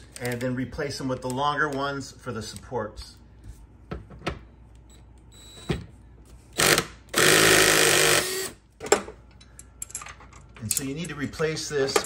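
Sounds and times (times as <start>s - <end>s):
cordless drill spinning: 6.6s - 8.6s.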